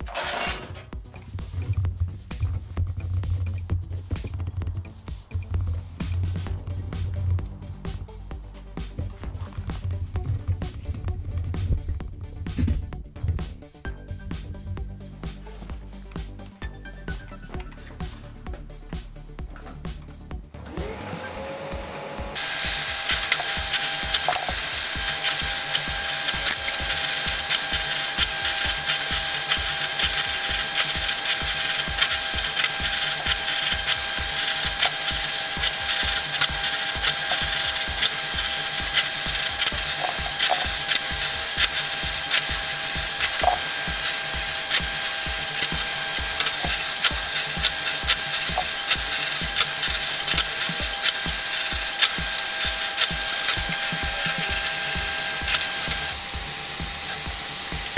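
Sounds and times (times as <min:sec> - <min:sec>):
drill press whining: 0:00.0 - 0:01.4, 0:20.6 - 0:57.9
rapid clicking rattle: 0:22.4 - 0:57.9.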